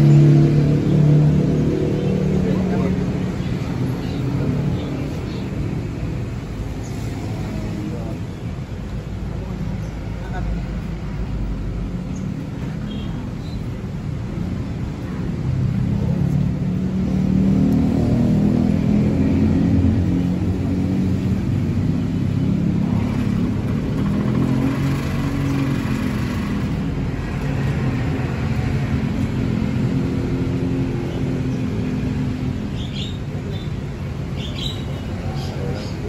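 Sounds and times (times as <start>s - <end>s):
street traffic rumble: 0.0s - 36.0s.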